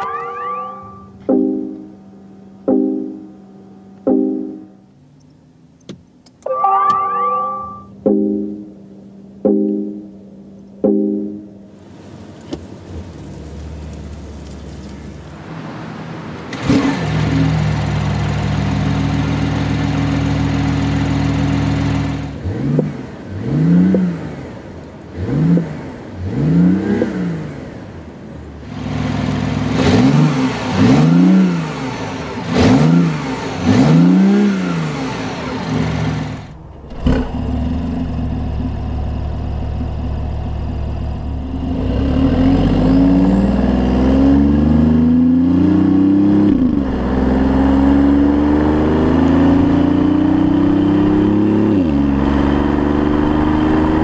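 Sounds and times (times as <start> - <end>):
car engine starting and idling: 0.0 - 54.0
car engine revving: 10.9 - 54.0.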